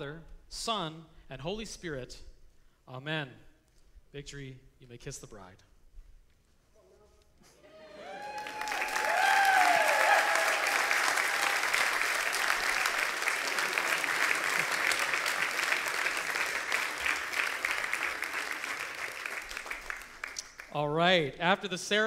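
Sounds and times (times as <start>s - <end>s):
whoops and cheers: 7.6s - 14.4s
crowd applauding: 7.6s - 20.8s.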